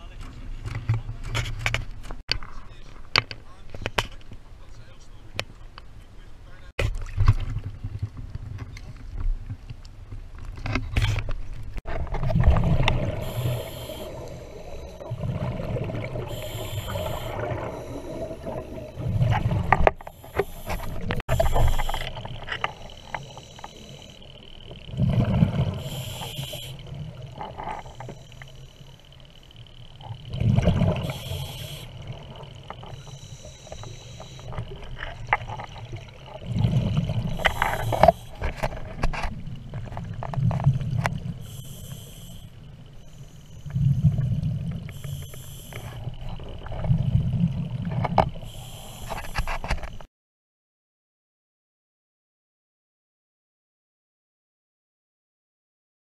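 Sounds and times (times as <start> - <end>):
exhaled bubbles rumbling underwater: 11.9 - 49.5
diver breathing through regulator: 13.0 - 38.7, 41.4 - 46.4, 48.4 - 49.9.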